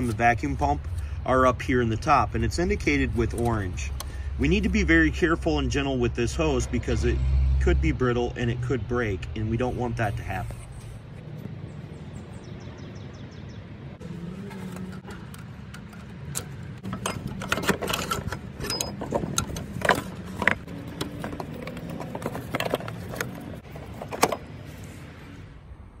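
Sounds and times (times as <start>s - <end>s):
hands clicking and tapping parts: 14.5s - 24.4s.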